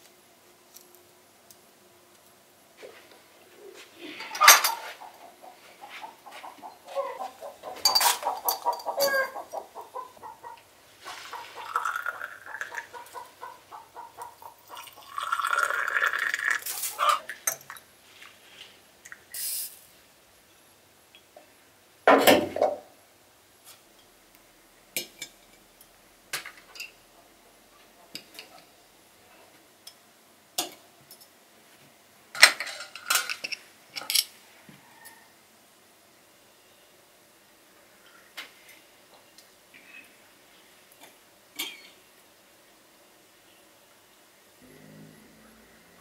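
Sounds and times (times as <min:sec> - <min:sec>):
chickens clucking: 0:03.6 - 0:15.1, 0:16.6 - 0:17.4
glass tea cups clinking: 0:07.8 - 0:09.4, 0:11.6 - 0:12.9, 0:14.7 - 0:17.8.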